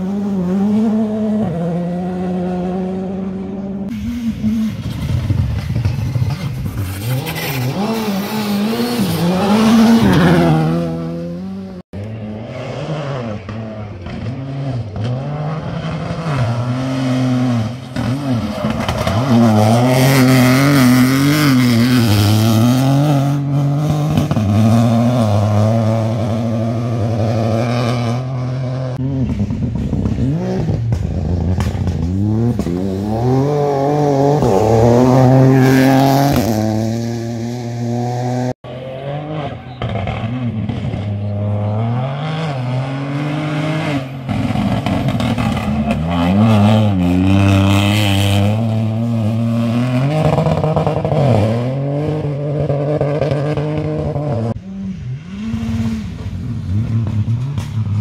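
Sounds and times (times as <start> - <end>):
rally car engines revving: 0.0 - 58.0.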